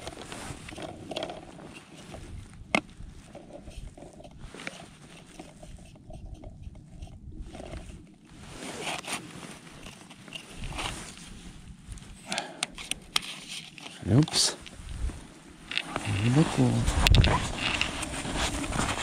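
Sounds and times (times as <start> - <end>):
wind buffeting microphone: 0.0 - 4.5, 5.6 - 8.6, 14.6 - 19.0.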